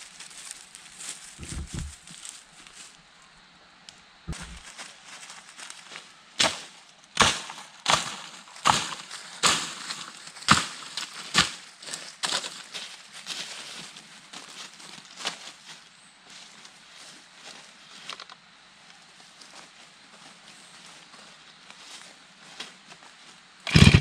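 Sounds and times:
blade chopping into wood: 23.7 - 24.0.

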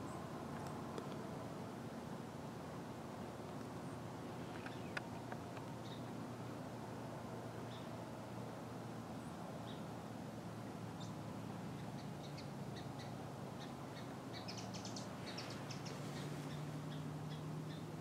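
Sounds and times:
small birds chirping: 3.2 - 6.2, 7.6 - 8.0, 9.1 - 10.1, 10.8 - 18.0.

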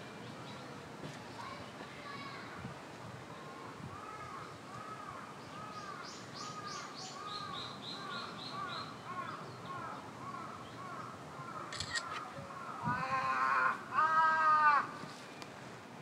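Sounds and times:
birds calling: 3.3 - 15.0
sharp click: 11.7 - 12.2.

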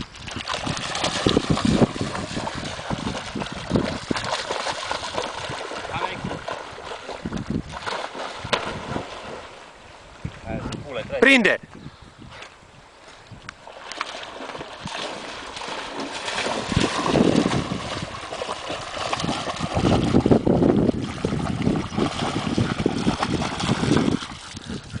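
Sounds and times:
dog splashing through water: 0.2 - 9.6, 13.7 - 25.0.

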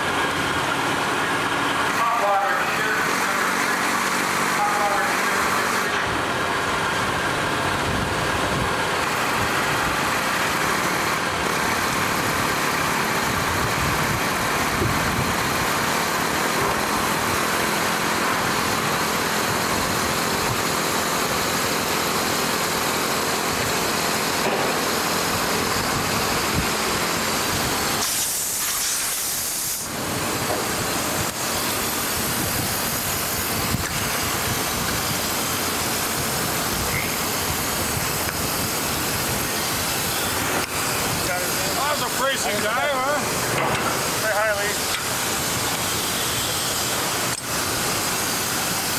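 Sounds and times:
engine running: 0.0 - 48.9
short loud hiss: 28.0 - 29.9.

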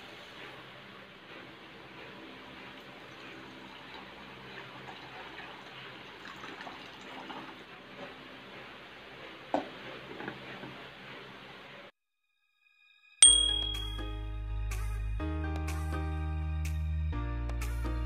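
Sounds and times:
water pouring into a pot: 2.7 - 7.9
glass lid clink: 13.2 - 14.1.

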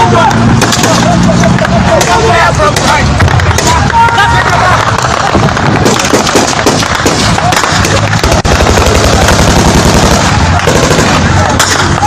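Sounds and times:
automatic gunfire bursts: 5.1 - 11.6.

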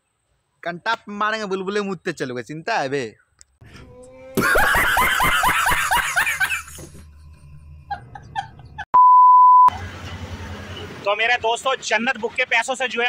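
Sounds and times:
man laughing loudly: 4.3 - 6.9, 7.9 - 8.9
steady test tone beep: 9.0 - 9.7.

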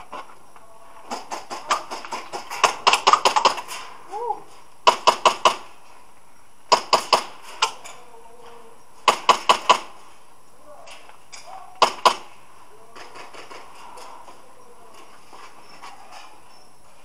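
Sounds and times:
airsoft guns firing pops: 1.1 - 3.9, 4.8 - 5.8, 6.7 - 8.0, 9.0 - 10.0, 11.8 - 12.4.

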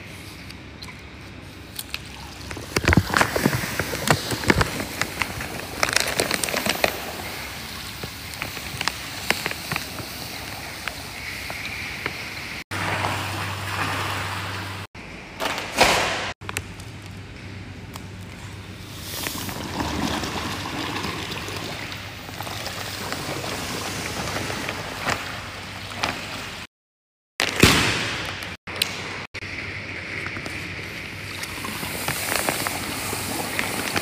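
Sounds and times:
salt pouring into water: 1.9 - 11.6, 18.8 - 25.0, 31.3 - 34.0
plastic bag crackling: 2.3 - 10.6.

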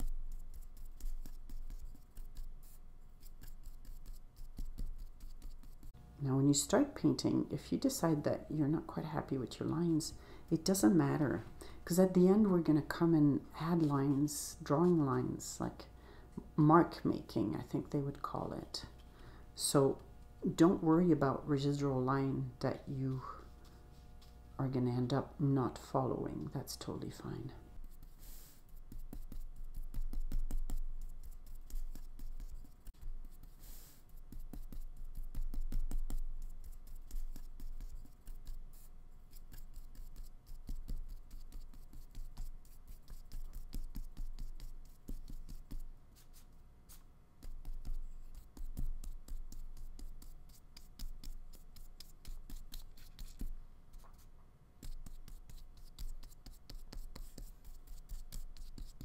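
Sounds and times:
paintbrush strokes on paper: 0.0 - 6.0, 26.2 - 59.0.

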